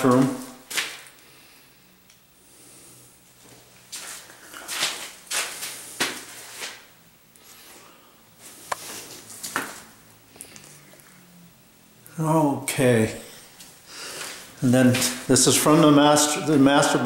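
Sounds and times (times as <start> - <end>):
footsteps and handling scuffs: 3.4 - 6.9, 8.4 - 9.9, 13.6 - 15.9.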